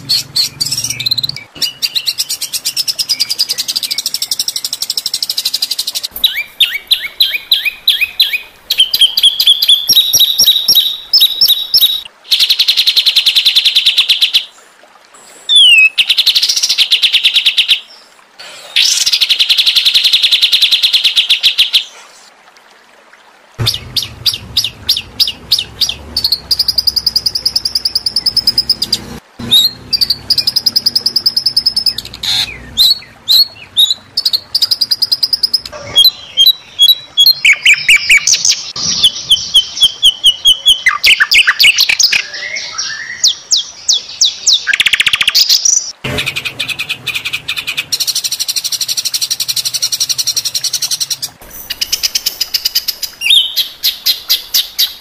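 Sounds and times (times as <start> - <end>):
low hum: 23.6 - 33.7.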